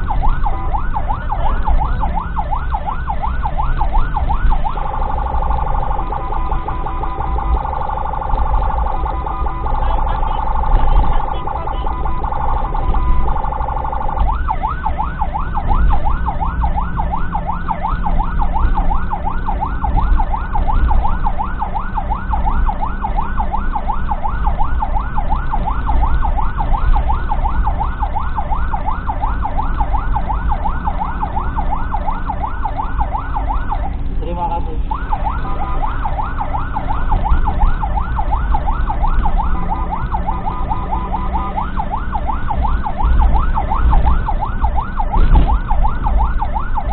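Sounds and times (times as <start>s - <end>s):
ambulance siren: 0.0s - 46.9s
engine and road rumble: 0.0s - 46.9s.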